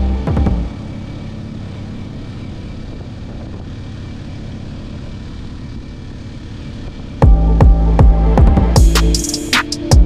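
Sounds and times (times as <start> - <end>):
motorcycle engine cruising: 0.0 - 10.0.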